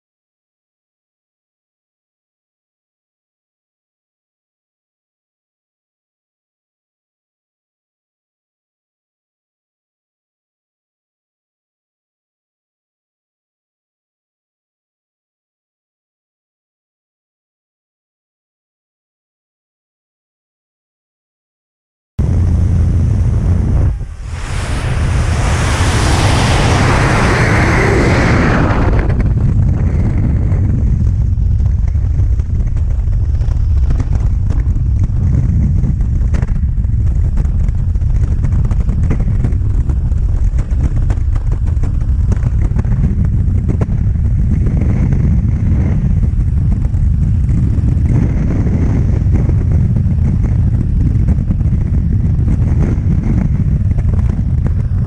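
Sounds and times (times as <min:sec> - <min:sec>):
wind buffeting microphone: 0:22.2 - 0:55.0
hissing rush of slipstream: 0:22.5 - 0:29.0.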